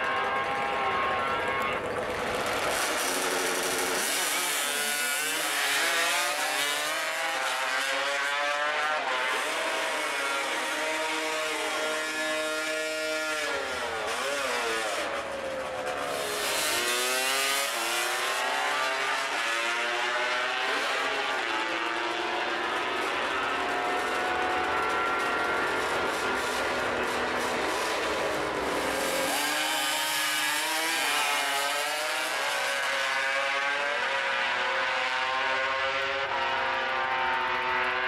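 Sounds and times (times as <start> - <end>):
two-stroke motorcycles accelerating: 0.0 - 38.0.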